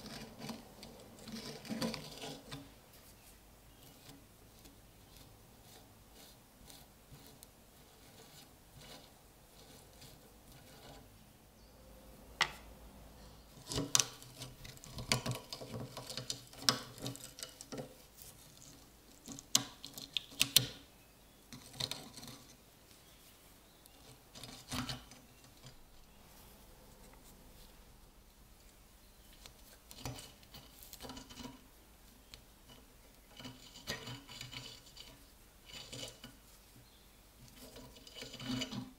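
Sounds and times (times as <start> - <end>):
metal tool scraping: 32.7 - 36.4, 37.5 - 38.9.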